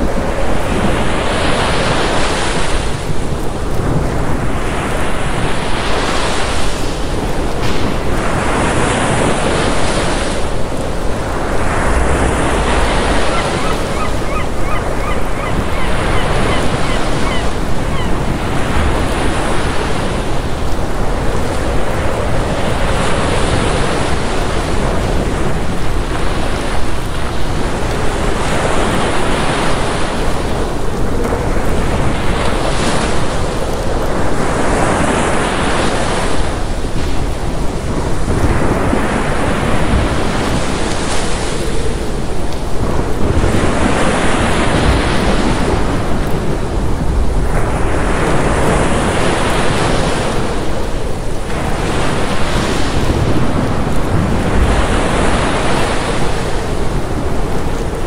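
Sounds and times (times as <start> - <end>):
ocean waves breaking against seawall: 0.0 - 58.0.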